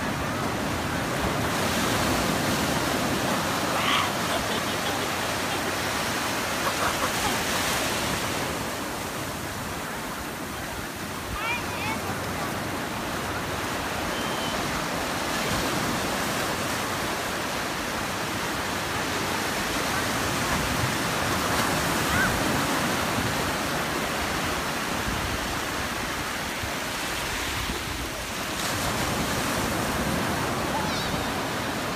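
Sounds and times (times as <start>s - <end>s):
ocean surf breaking: 0.0s - 31.9s.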